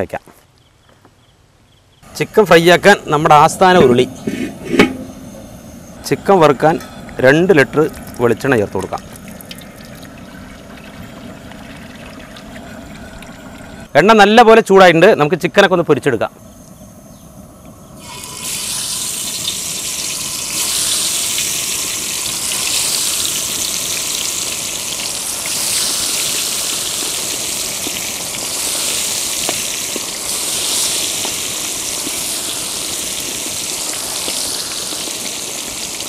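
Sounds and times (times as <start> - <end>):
oil sizzling: 2.9 - 13.9, 17.7 - 36.0
small oil pops: 29.4 - 30.1.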